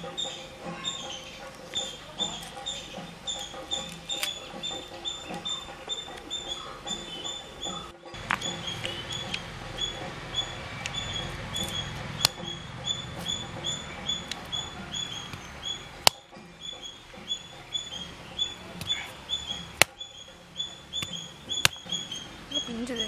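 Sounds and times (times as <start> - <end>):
bird chirping: 0.0 - 23.0
peel scraping on grinding stone: 0.2 - 9.9
sharp clicks: 7.7 - 22.3.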